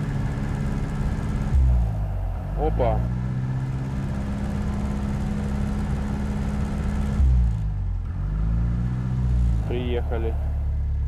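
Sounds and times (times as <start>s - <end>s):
aircraft piston engine running: 0.0s - 7.3s, 9.6s - 10.8s.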